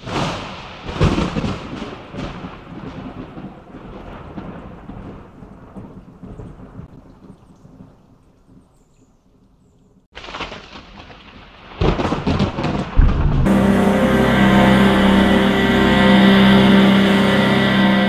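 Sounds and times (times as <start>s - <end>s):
thunderclap with rolling rumble: 0.0s - 8.0s, 10.2s - 13.8s.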